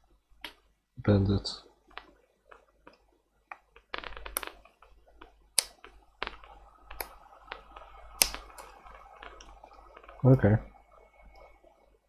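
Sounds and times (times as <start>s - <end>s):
tablet parts clicking: 1.9s - 9.6s.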